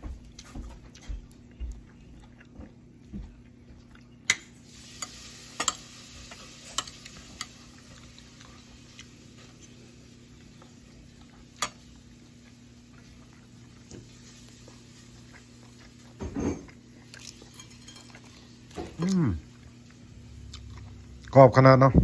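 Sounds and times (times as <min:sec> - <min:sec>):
metal spoon clinking on plate: 0:16.4 - 0:18.2.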